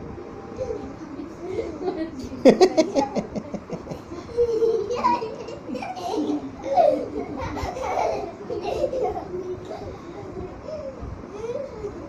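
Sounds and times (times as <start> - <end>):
boys laughing loudly: 1.5 - 9.5.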